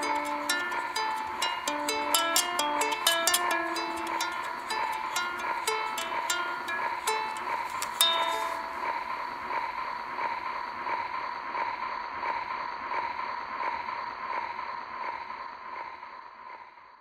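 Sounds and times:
record surface hiss: 0.0 - 8.9
steady tone: 0.0 - 15.9.

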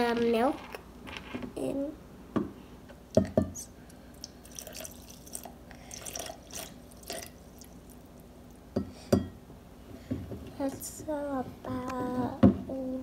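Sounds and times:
milk pouring over ice: 4.2 - 8.1.

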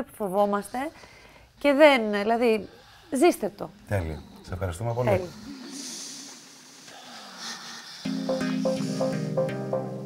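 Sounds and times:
background music: 8.0 - 10.0.

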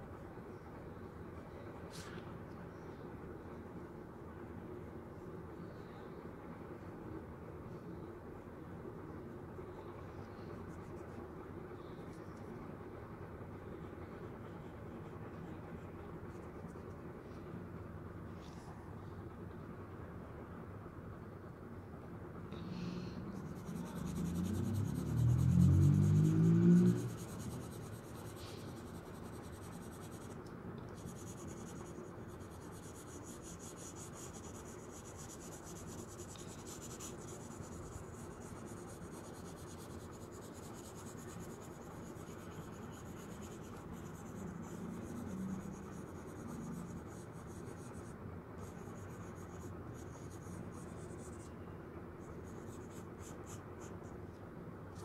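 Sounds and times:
pencil scratching on paper: 23.4 - 51.5, 52.4 - 54.1.

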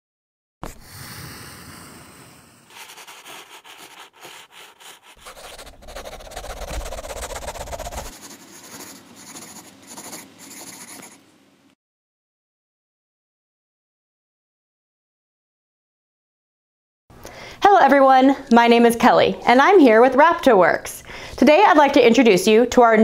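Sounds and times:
pencil scratching on paper: 2.7 - 11.2.

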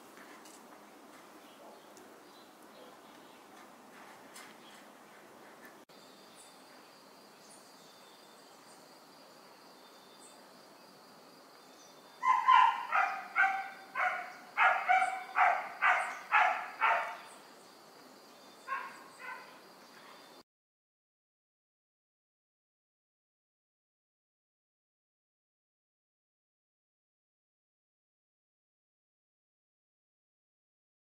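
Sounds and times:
dog barking: 12.2 - 17.2, 18.7 - 19.6.

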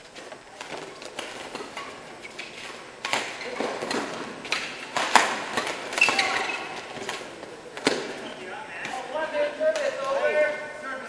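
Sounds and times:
racket hitting shuttlecock: 0.5 - 8.2
shoe squeak: 0.9 - 4.2, 6.0 - 7.1, 8.0 - 8.5.

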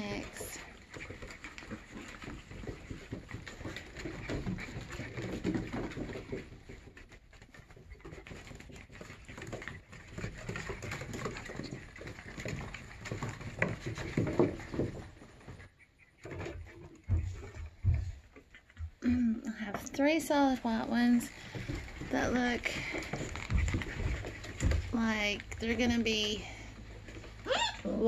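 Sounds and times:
paws scrabbling on wooden deck: 0.0 - 28.0
puppies growling and grunting: 26.4 - 28.0.

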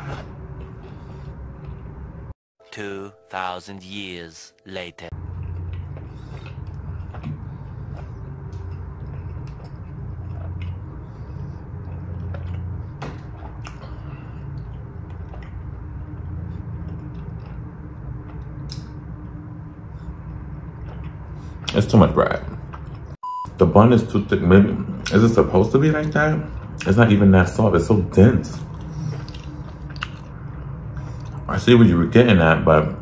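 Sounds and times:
steady low hum: 0.0 - 2.4, 5.1 - 33.0
person chewing: 5.2 - 21.8, 28.6 - 31.5.

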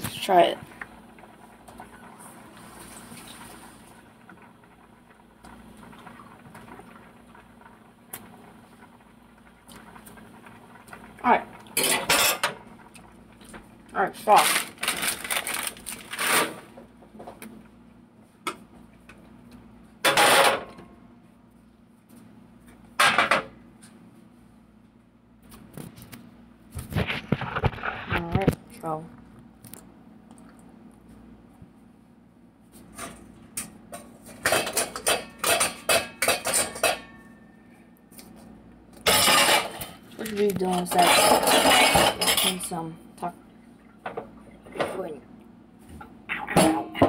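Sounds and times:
pots and utensils clattering: 11.8 - 12.6, 20.0 - 20.8, 33.0 - 37.4, 39.0 - 42.8.

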